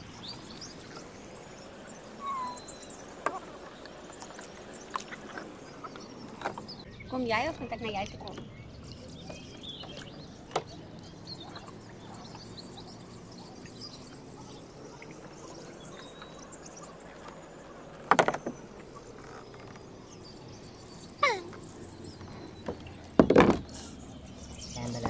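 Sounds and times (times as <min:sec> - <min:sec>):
water dripping from paddle: 0:00.2 - 0:06.8, 0:09.8 - 0:23.4
rattle of loud knocks: 0:18.0 - 0:19.7, 0:22.6 - 0:23.8.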